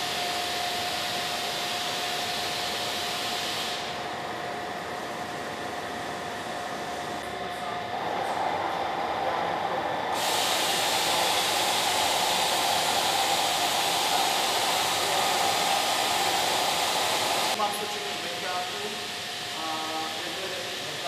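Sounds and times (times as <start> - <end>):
loud steady hiss: 0.0 - 4.2, 10.0 - 21.0
machinery hum with whine: 0.0 - 21.0.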